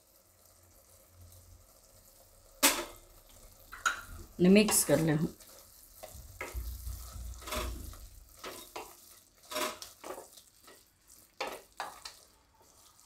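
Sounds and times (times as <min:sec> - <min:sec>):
spatula scraping a pan: 0:03.7 - 0:13.0.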